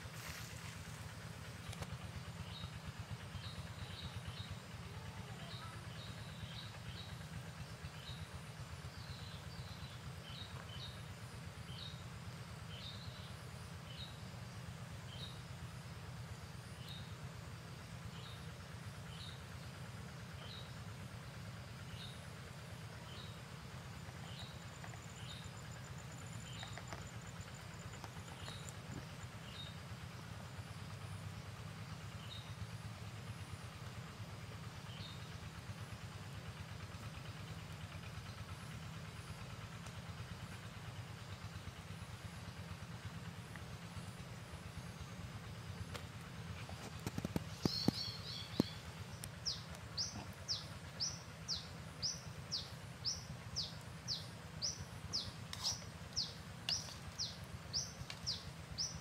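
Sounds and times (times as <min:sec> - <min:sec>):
low background rumble: 0:00.0 - 0:59.0
bird chirping: 0:46.6 - 0:59.0.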